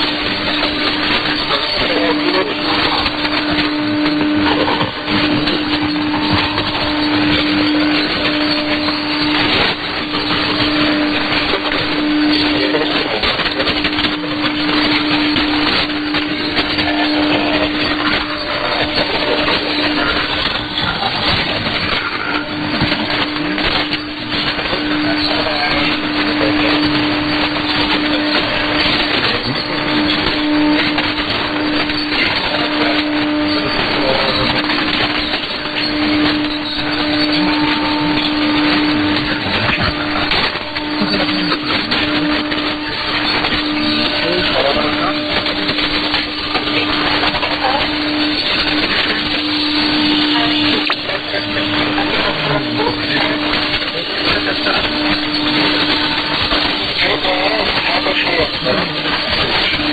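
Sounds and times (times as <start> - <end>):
radio static: 0.0 - 59.9
steady low tone: 0.0 - 59.9
steady low whistle: 0.0 - 59.9.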